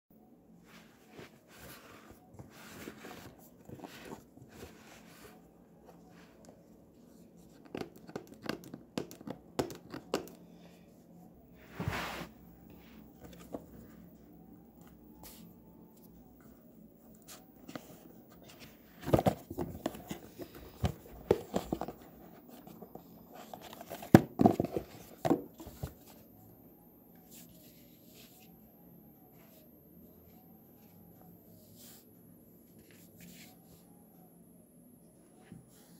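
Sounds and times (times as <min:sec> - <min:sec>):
rustles and scrapes of wrapping: 0:00.6 - 0:07.6, 0:10.8 - 0:14.1, 0:27.2 - 0:28.6.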